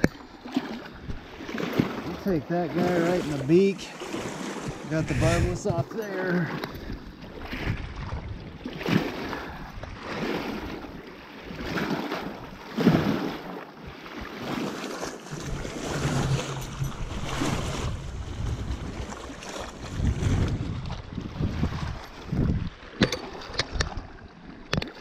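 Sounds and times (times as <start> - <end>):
waves washing against rocks: 0.0 - 25.0
wind buffeting microphone: 0.9 - 13.2, 14.2 - 24.2.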